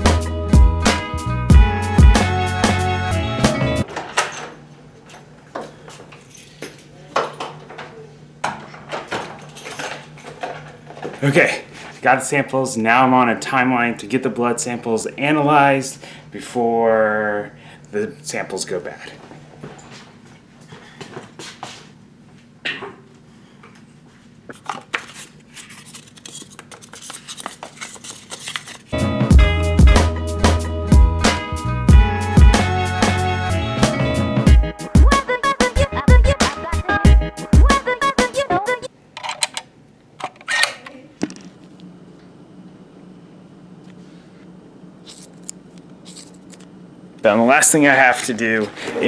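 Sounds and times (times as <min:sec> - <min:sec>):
background music: 0:00.0 - 0:03.9, 0:29.0 - 0:38.9
steady low hum: 0:40.8 - 0:49.0.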